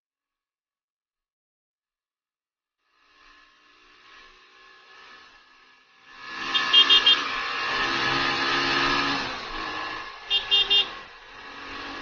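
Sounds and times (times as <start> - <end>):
motorcycle engine running: 3.1 - 12.0
horn tooting: 6.4 - 7.4, 10.2 - 11.1.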